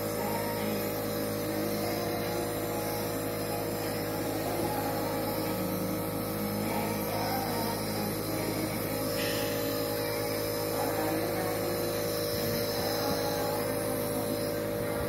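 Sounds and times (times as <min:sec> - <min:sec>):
steady hum with tones: 0:00.0 - 0:15.0.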